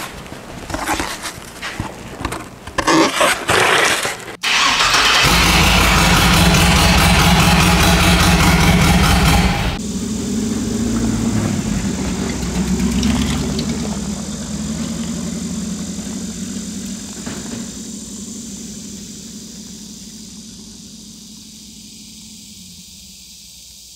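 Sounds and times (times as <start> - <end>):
truck engine driving away: 4.4 - 23.6.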